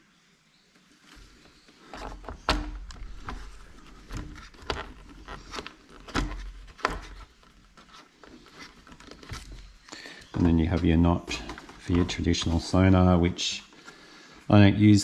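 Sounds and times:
cable handling thumps: 0:01.2 - 0:13.0.

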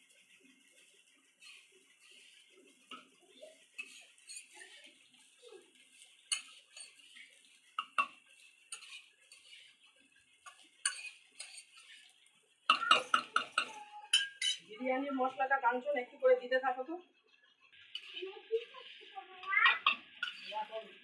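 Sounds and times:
metal spatula scraping a pan: 0:00.0 - 0:21.0.

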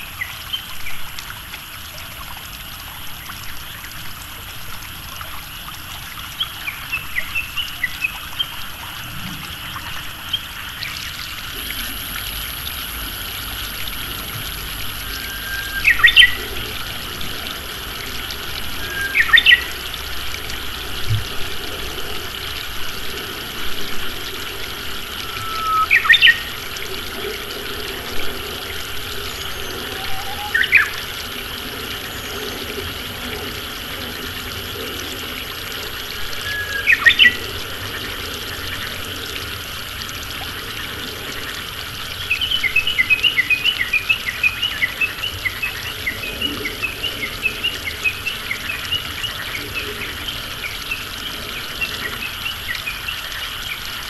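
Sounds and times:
water trickling: 0:00.0 - 0:54.0
bush warbler singing: 0:15.2 - 0:16.6, 0:18.7 - 0:19.8, 0:25.2 - 0:26.5.

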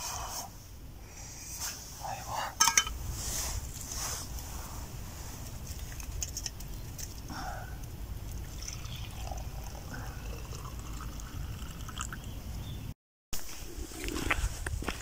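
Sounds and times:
water trickling into a cup: 0:08.3 - 0:12.4.

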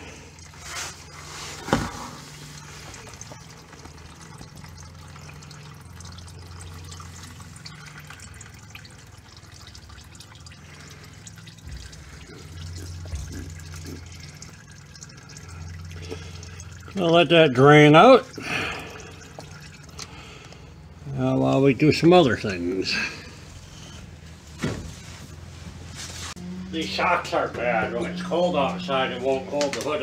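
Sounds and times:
oil stream splashing into pan: 0:00.0 - 0:20.7.

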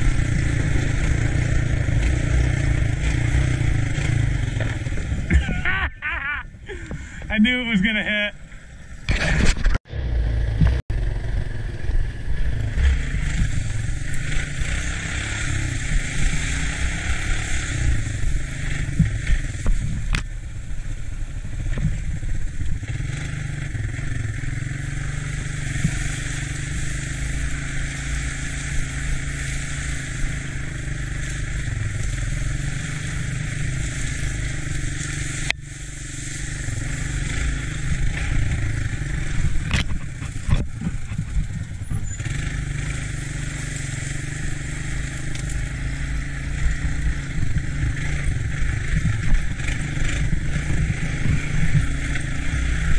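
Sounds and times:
three-wheeler engine running: 0:00.0 - 0:52.9.

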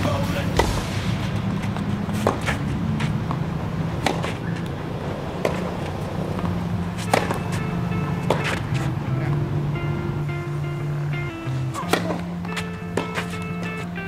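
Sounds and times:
rackets striking tennis ball: 0:00.0 - 0:11.0, 0:11.6 - 0:14.0
ball bouncing: 0:00.6 - 0:04.8, 0:05.4 - 0:09.5, 0:11.7 - 0:13.9
low background music: 0:06.2 - 0:14.0.

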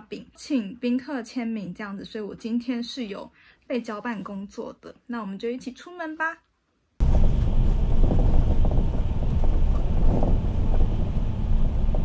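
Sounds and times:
bus engine and road noise: 0:07.0 - 0:12.0
wind noise on microphone: 0:07.0 - 0:12.0.

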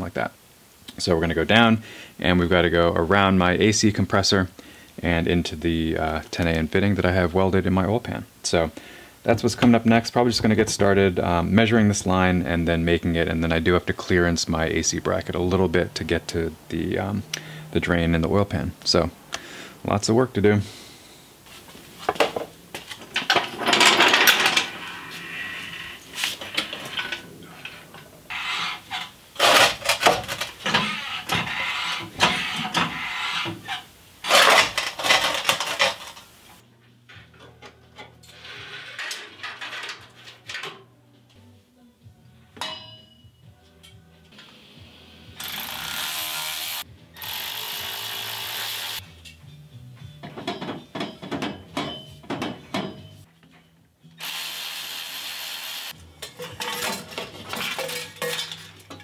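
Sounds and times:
quiet background music: 0:01.1 - 0:20.7, 0:22.3 - 0:54.9, 0:55.9 - 0:59.0
metal tools clanking and scraping: 0:22.2 - 0:36.3, 0:37.1 - 0:40.9, 0:50.2 - 0:53.7, 0:56.1 - 0:59.0.

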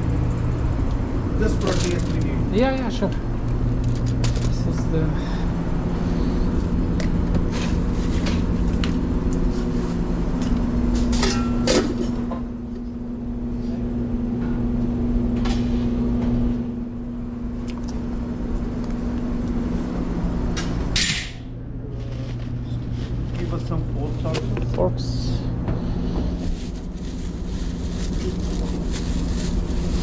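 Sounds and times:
kitchen machinery hum: 0:00.0 - 0:30.0
food being handled: 0:26.3 - 0:30.0.

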